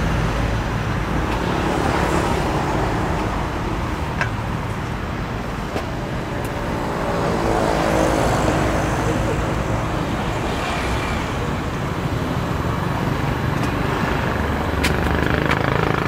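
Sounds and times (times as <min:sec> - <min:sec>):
road traffic: 0:00.0 - 0:16.0.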